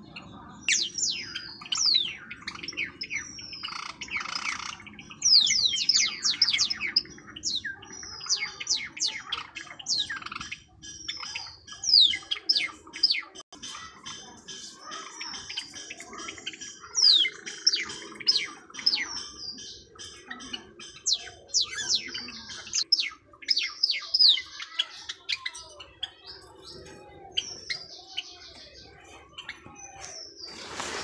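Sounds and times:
caged birds chirping: 0:00.0 - 0:31.0.

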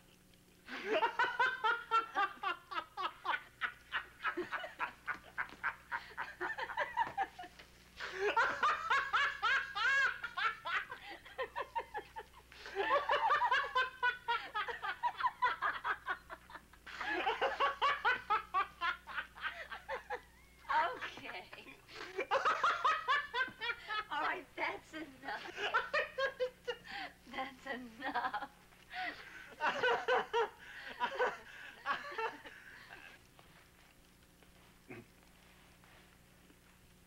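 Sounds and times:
man laughing: 0:00.7 - 0:20.5, 0:29.0 - 0:33.2
woman laughing: 0:00.7 - 0:33.2.

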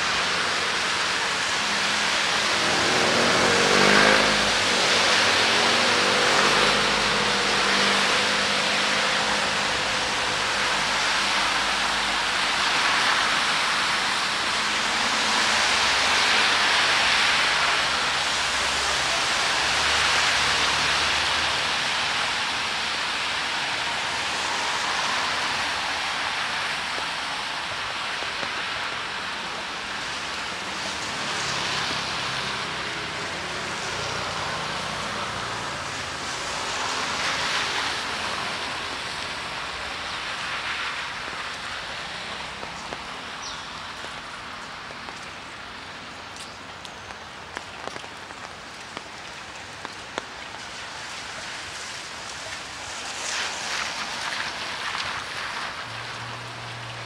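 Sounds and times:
steady rain hiss: 0:00.0 - 0:57.0.

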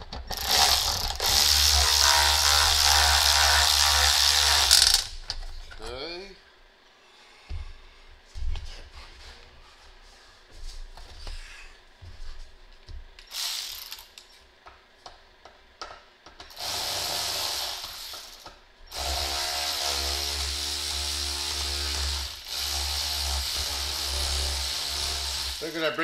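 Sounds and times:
electric ratchet motor whine: 0:00.3 - 0:05.1.

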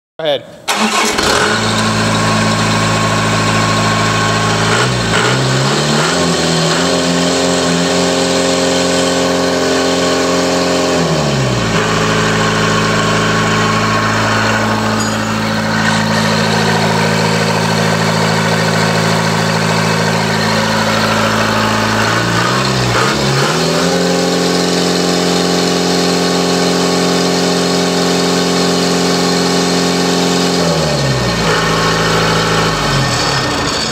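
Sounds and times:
diesel engine revving: 0:00.7 - 0:33.9.

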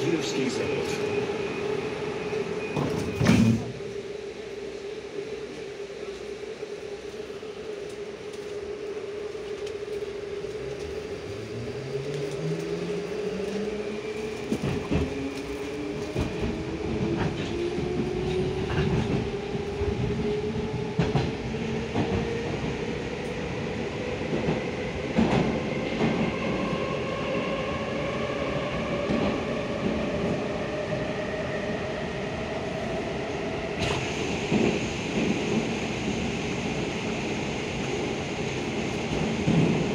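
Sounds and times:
train running gear rumble: 0:05.4 - 0:23.4.

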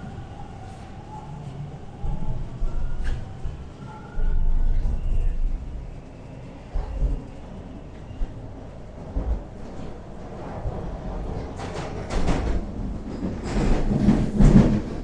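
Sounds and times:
subway train rumbling in tunnel: 0:00.0 - 0:15.0.

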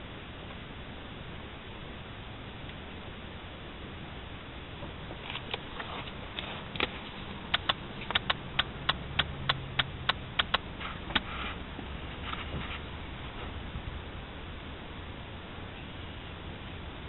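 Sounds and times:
book pages flicking: 0:07.5 - 0:11.4.

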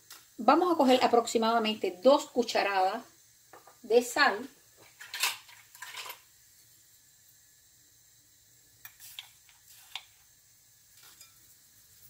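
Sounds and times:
spoon scooping coarse salt: 0:08.8 - 0:10.3, 0:10.9 - 0:12.0.

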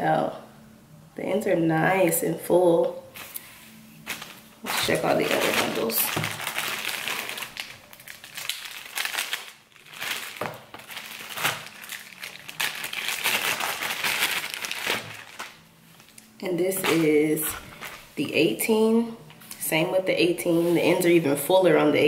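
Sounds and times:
plastic bags crinkling: 0:04.0 - 0:18.2.

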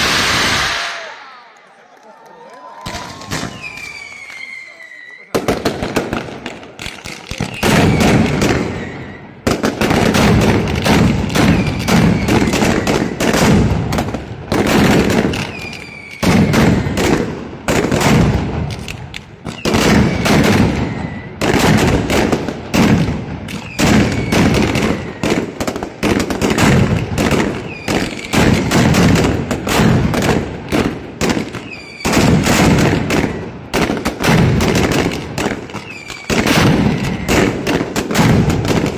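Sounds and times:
firecrackers banging: 0:00.0 - 0:01.2, 0:02.8 - 0:38.9
falling whistles: 0:03.3 - 0:05.3.

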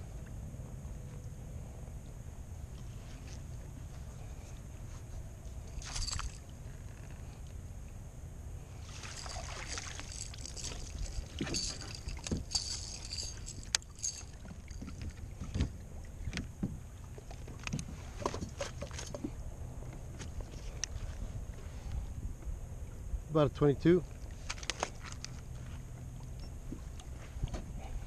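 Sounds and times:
fish splashing at surface: 0:08.8 - 0:12.7.

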